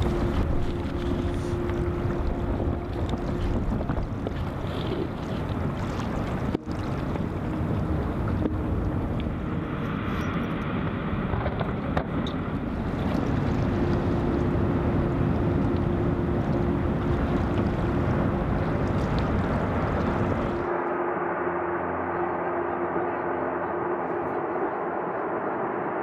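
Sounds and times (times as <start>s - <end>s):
wind buffeting microphone: 0.0s - 20.7s
boat motor rumbling: 0.0s - 26.0s.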